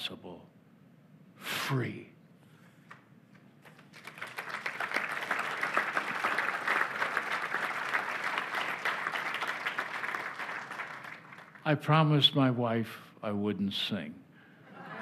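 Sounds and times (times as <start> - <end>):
audience applauding: 3.6 - 11.6.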